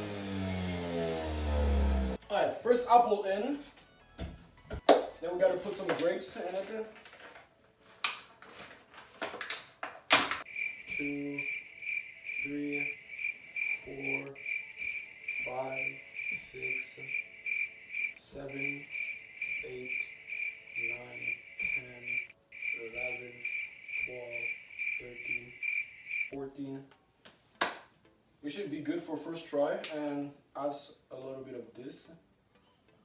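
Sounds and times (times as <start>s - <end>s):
crickets chirping: 10.4s - 26.4s.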